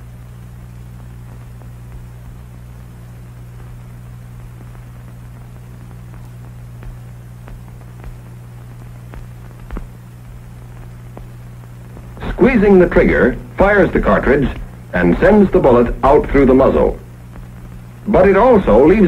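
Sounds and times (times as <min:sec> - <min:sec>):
film soundtrack hum and hiss: 0:00.0 - 0:19.0
faint clicks: 0:01.0 - 0:12.4.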